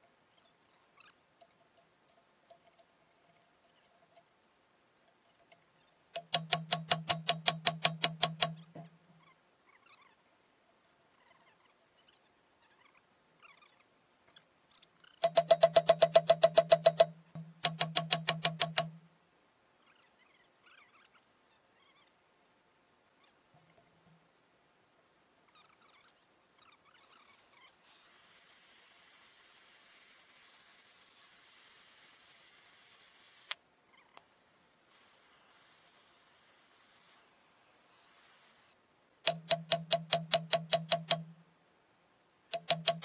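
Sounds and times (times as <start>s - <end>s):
rapid mechanical clicking: 6.2s - 8.9s, 15.2s - 19.0s, 39.2s - 41.4s, 42.5s - 43.0s.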